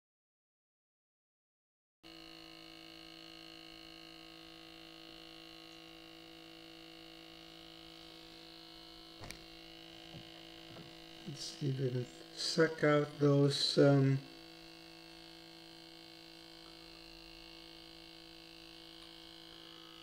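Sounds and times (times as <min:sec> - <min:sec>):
faint electrical hum: 0:02.2 - 0:20.0
click: 0:09.2 - 0:09.4.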